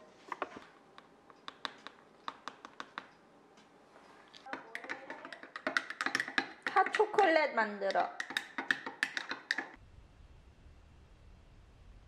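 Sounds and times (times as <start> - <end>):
spoon scraping mug: 4.4 - 7.2, 8.1 - 9.8
metal spoon clinking in a mug: 4.5 - 7.2.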